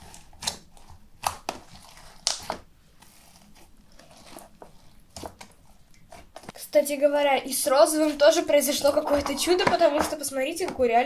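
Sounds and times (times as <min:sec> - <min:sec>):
slime crackling: 0:00.0 - 0:06.6, 0:07.5 - 0:11.0.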